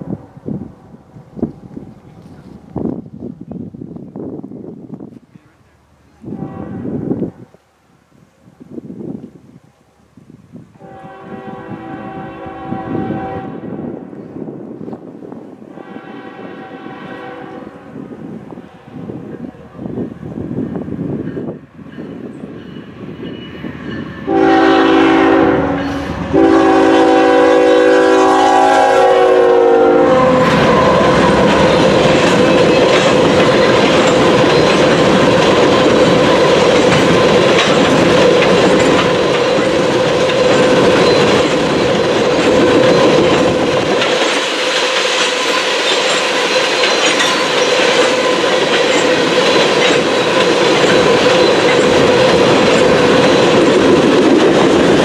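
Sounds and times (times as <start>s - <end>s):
wheels whining on rail: 0.0s - 55.0s
locomotive air horn blasts: 6.2s - 7.5s, 10.8s - 14.0s, 15.7s - 18.0s, 24.2s - 32.2s
wheels clicking over rail joints: 31.3s - 55.0s.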